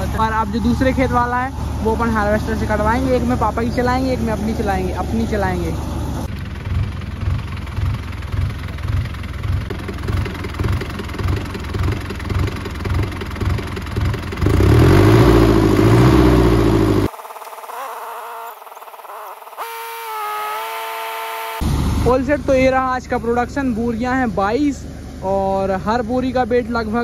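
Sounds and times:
diesel tractor engine starting: 0:00.0 - 0:20.8, 0:21.6 - 0:27.0.

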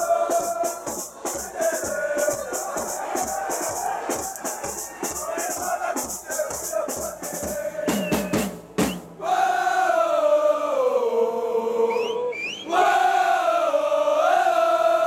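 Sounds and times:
crowd chanting: 0:00.0 - 0:08.5, 0:09.2 - 0:15.0
snare and bass drums: 0:00.0 - 0:09.2.

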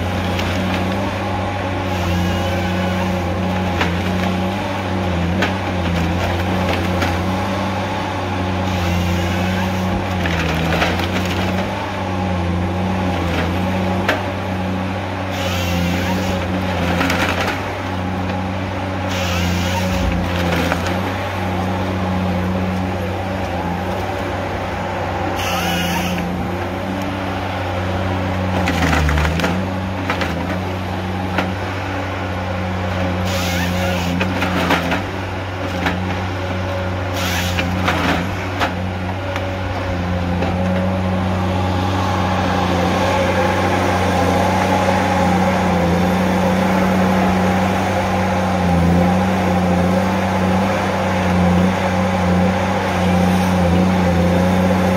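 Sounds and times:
diesel engine running under load: 0:00.0 - 0:54.9
wood crackling and splintering: 0:01.9 - 0:07.7, 0:08.7 - 0:11.9, 0:19.1 - 0:21.9, 0:28.4 - 0:31.8.

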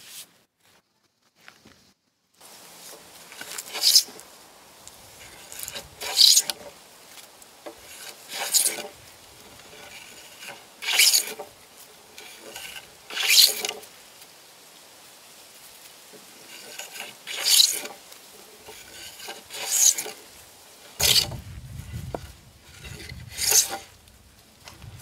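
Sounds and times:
hand plane shaving wood: 0:03.4 - 0:04.2, 0:05.2 - 0:06.7, 0:07.7 - 0:11.5, 0:12.1 - 0:13.8, 0:16.4 - 0:18.0, 0:18.6 - 0:20.3, 0:20.9 - 0:21.4, 0:22.1 - 0:23.9.

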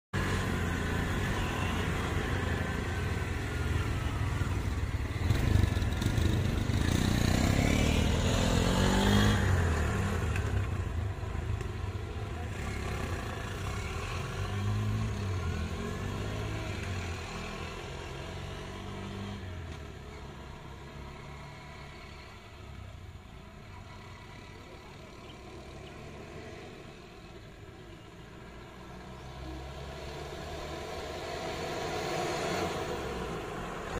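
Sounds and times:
vehicle engines revving and passing: 0:00.2 - 0:33.9.

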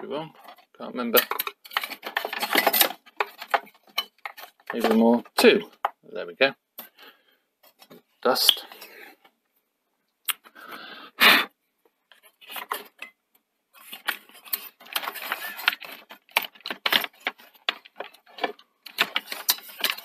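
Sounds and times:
metal parts clicking and rattling: 0:00.4 - 0:05.2, 0:13.9 - 0:20.0.

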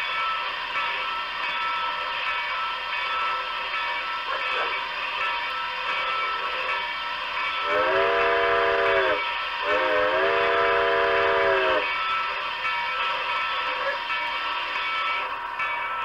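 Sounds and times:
steady steam hiss: 0:00.0 - 0:16.0
steam locomotive whistle: 0:07.6 - 0:11.9.

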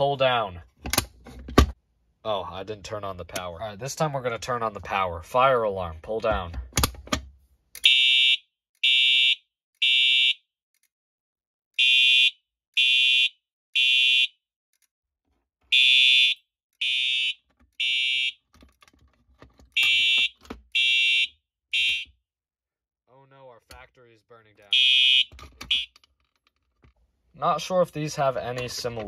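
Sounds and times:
fire alarm horn beeping: 0:07.8 - 0:10.4, 0:11.8 - 0:14.4, 0:15.7 - 0:18.4, 0:19.8 - 0:22.2, 0:24.7 - 0:26.0.

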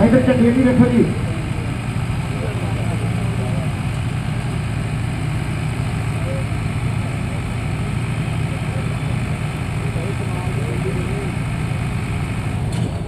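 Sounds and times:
diesel tractors running: 0:00.0 - 0:13.0.

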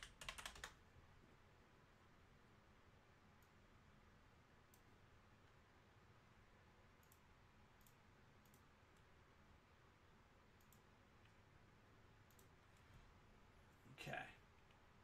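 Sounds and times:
computer mouse clicks: 0:07.0 - 0:09.1, 0:10.6 - 0:11.4, 0:12.2 - 0:12.6.

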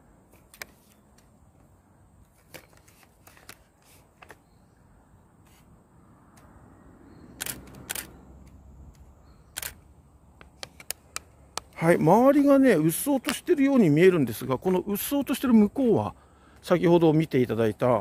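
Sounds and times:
camera handling clicks and knocks: 0:10.4 - 0:11.8.

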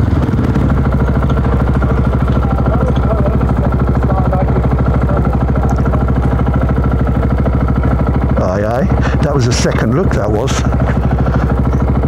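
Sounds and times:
motorcycle engine idling: 0:00.0 - 0:12.0.

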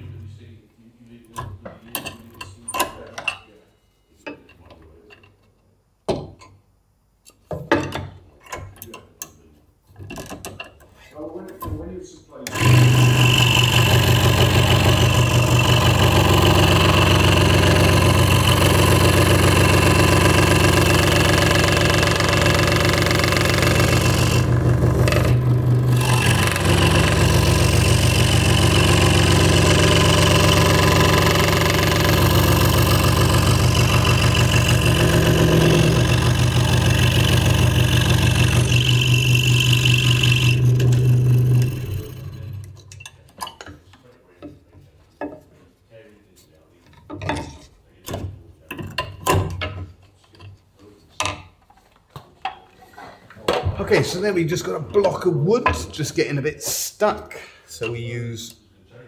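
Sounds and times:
scroll saw cutting wood: 0:12.5 - 0:42.8.

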